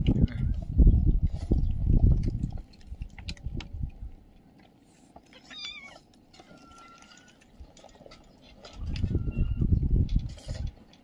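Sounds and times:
cats eating from plastic trough: 0.0s - 11.0s
cat meowing: 5.3s - 6.0s.

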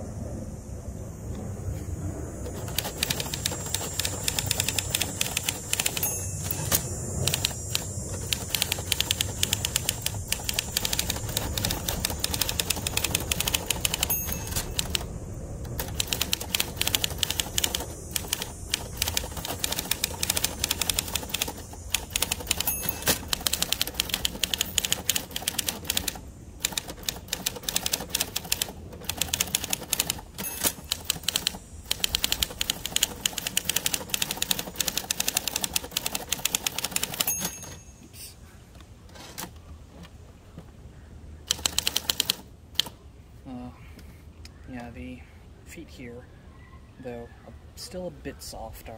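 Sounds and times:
manual typewriter clacking: 2.5s - 37.9s, 41.5s - 43.0s.

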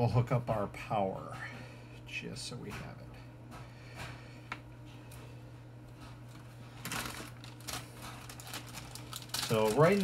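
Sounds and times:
packaging rustling: 6.3s - 10.0s.

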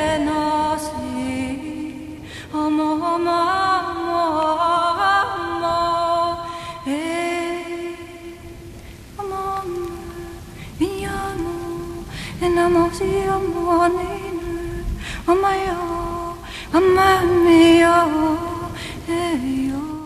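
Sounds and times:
woman singing slow melody: 0.0s - 20.0s
breaths: 2.1s - 2.6s, 6.4s - 6.9s, 8.6s - 9.2s, 10.4s - 10.8s, 12.0s - 12.4s, 14.9s - 15.3s, 16.4s - 16.8s, 18.7s - 19.1s.

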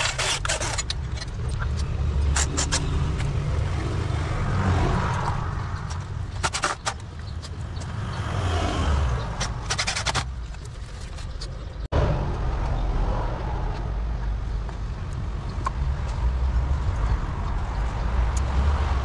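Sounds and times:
metallic clicks and rattles of tools: 0.0s - 3.4s
low rumble: 11.7s - 18.4s.

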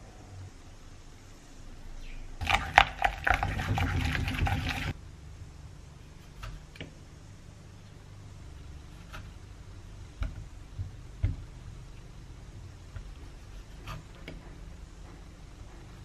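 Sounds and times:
spoons squelching wet paste: 2.4s - 5.0s.

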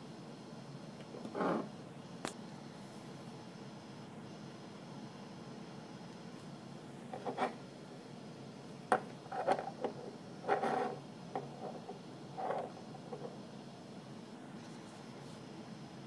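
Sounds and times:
steady low hiss: 0.0s - 16.0s.

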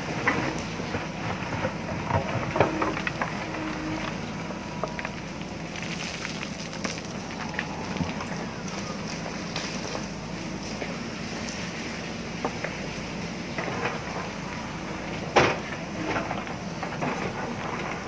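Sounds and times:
diesel engine running: 0.0s - 18.0s
stones and earth knocking: 4.8s - 10.1s.

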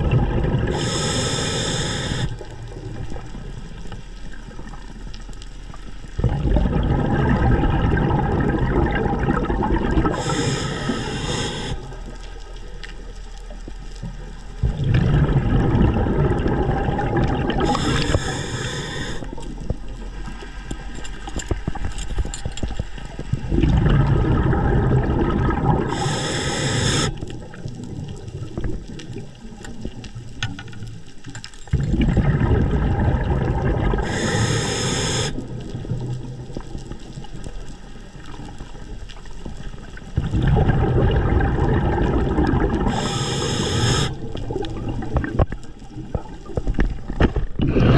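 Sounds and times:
exhaled bubbles rumbling underwater: 0.0s - 47.9s
regulator hiss: 0.7s - 2.4s, 10.1s - 12.0s, 17.6s - 19.4s, 25.8s - 27.3s, 34.0s - 35.5s, 42.8s - 44.3s.

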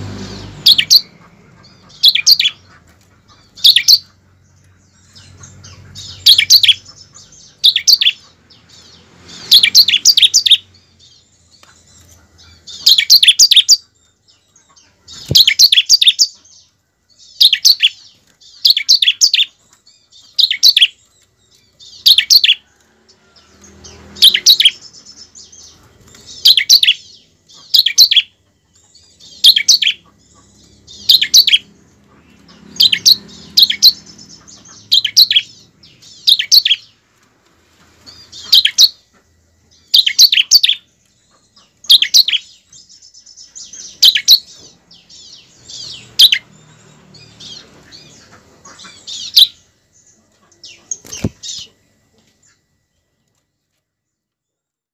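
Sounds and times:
bird singing sharp high notes: 0.0s - 2.7s, 29.1s - 37.0s.

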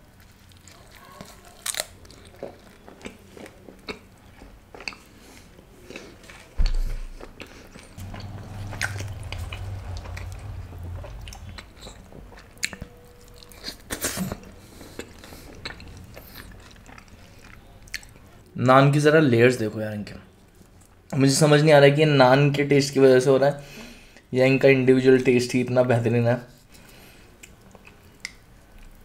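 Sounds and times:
person chewing and crunching: 0.2s - 18.4s
low hum: 7.9s - 18.4s
low thump: 8.0s - 12.3s.

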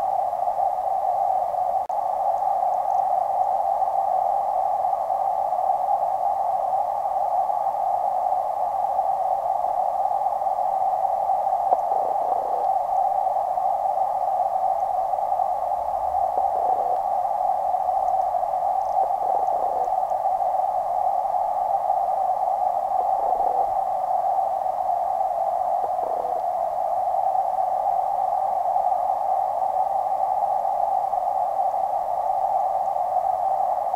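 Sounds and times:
underwater creek water hiss: 1.2s - 33.9s.

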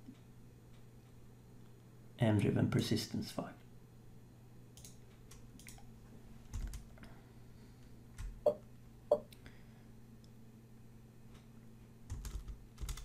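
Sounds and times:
faint steady hum: 0.0s - 13.0s
keyboard and mouse clicks: 4.8s - 5.9s.

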